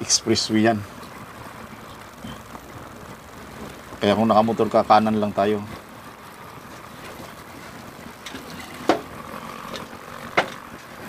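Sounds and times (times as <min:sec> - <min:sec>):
wind and road noise: 0:00.0 - 0:11.0.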